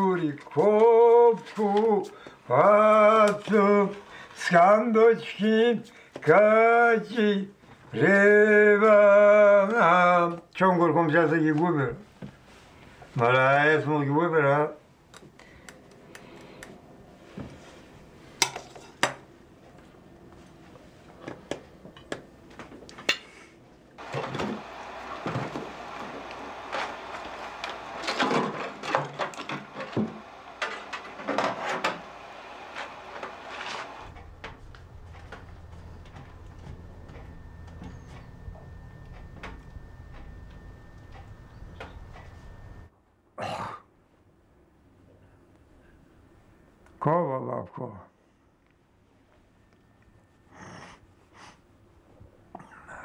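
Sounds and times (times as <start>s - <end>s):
steady low hum: 14.7s - 53.0s
faint thin high tone: 35.6s - 42.9s.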